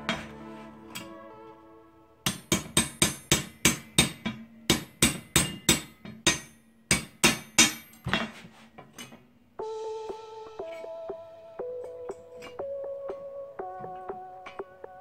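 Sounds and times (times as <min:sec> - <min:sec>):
hammer striking steel punch: 0:02.3 - 0:08.0.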